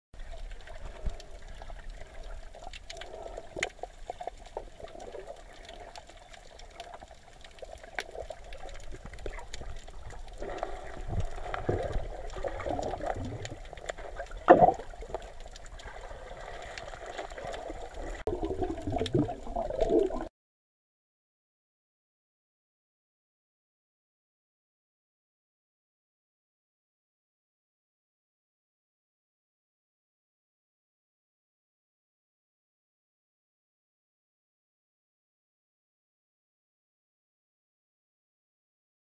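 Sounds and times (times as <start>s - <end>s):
faint clicks: 0.2s - 20.3s
muffled underwater sloshing: 0.2s - 20.3s.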